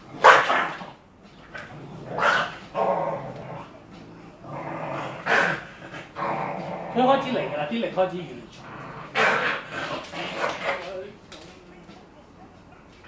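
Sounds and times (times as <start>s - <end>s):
dog barking and growling: 0.0s - 7.7s, 8.6s - 11.0s.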